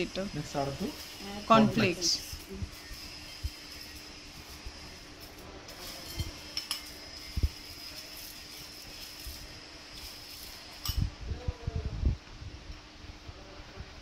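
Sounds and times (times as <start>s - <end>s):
metal spoon clinking ceramic bowls: 5.9s - 6.9s.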